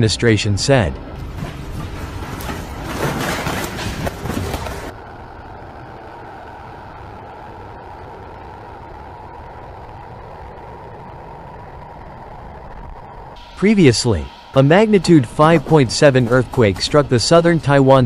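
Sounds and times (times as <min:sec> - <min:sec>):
low hum with faint tone: 0:00.0 - 0:18.0
landslide rumble: 0:00.7 - 0:18.0.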